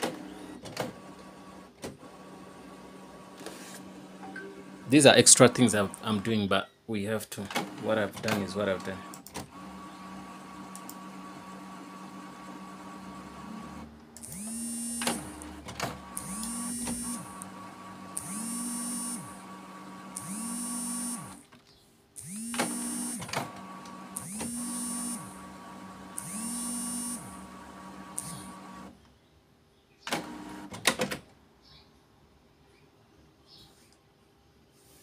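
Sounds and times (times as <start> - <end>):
print head carriage whine: 0.0 - 6.4, 7.6 - 21.4, 22.2 - 29.0
printer motor hum: 0.0 - 6.4, 7.5 - 21.4, 22.2 - 29.0.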